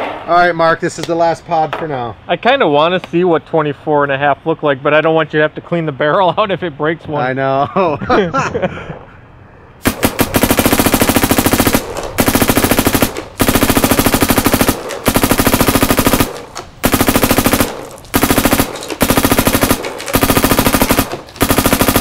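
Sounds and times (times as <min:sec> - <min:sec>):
paintball marker rapid firing: 0:09.8 - 0:22.0.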